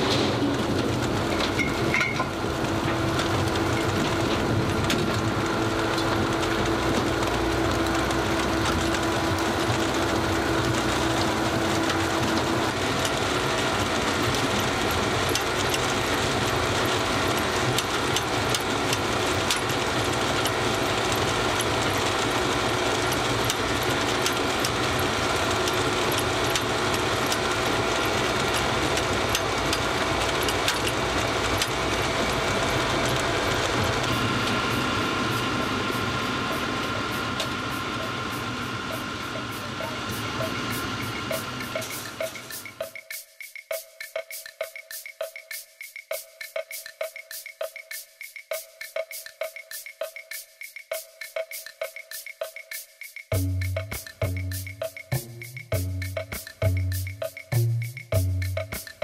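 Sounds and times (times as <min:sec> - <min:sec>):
beet cleaner machine droning: 0:00.0 - 0:43.0
steady hum: 0:33.0 - 0:43.1.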